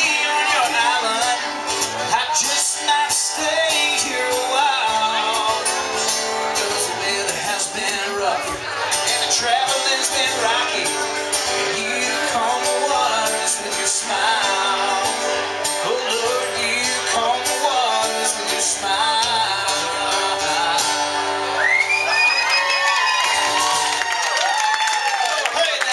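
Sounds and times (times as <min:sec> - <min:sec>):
acoustic guitars strumming: 0:00.0 - 0:24.2.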